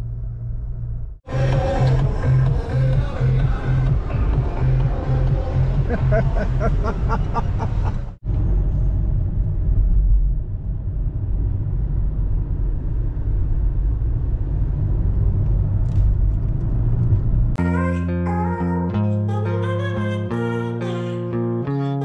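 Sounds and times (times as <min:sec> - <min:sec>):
road rumble inside moving car: 0:00.0 - 0:17.6
guitar music: 0:17.6 - 0:22.0.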